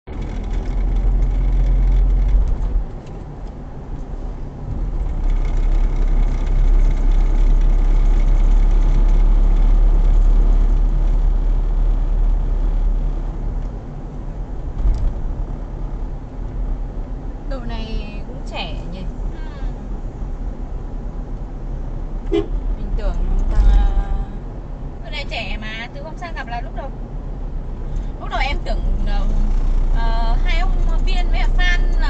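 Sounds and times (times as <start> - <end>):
car cabin road and engine rumble: 0.0 - 32.0.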